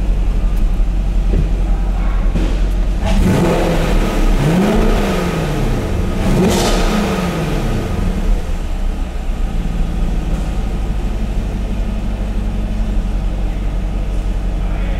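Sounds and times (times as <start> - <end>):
car engine revving down and idling: 0.0 - 14.9.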